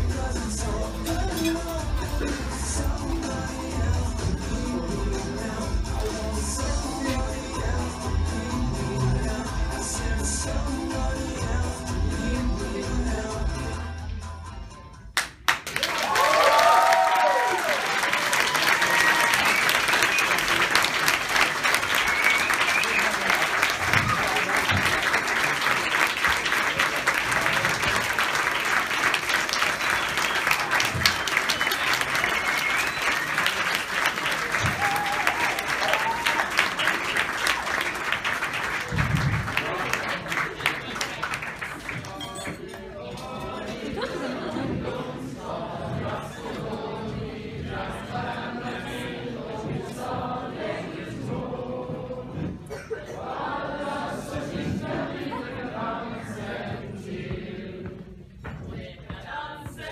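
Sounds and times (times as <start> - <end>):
audience applauding: 15.2 - 42.9
women's choir singing: 42.5 - 59.9.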